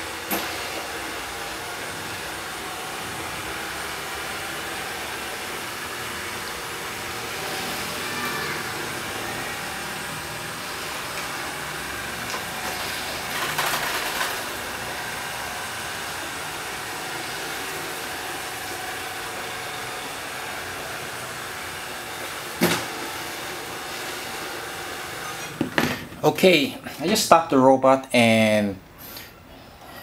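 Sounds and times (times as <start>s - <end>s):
robot vacuum whirring: 0.3s - 25.7s.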